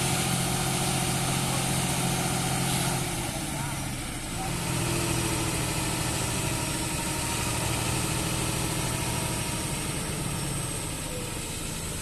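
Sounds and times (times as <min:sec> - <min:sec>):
lorry diesel engine idling: 0:00.0 - 0:12.0.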